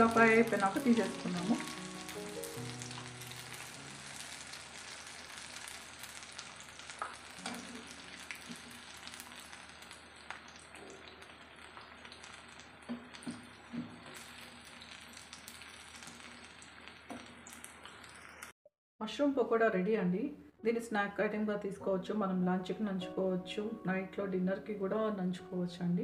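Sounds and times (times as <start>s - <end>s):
hot oil sizzling: 0.0s - 18.6s.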